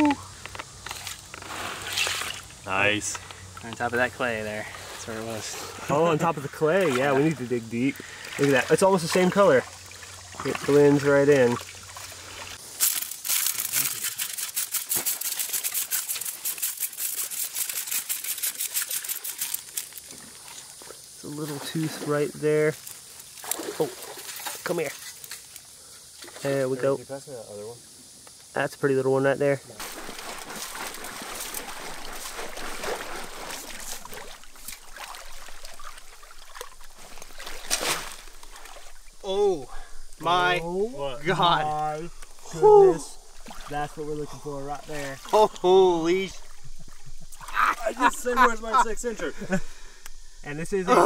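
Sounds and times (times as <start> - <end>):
water sloshing and splashing: 0.8 - 2.6, 3.3 - 26.6, 29.8 - 48.8
gravel rattling on plastic screen: 12.8 - 20.2.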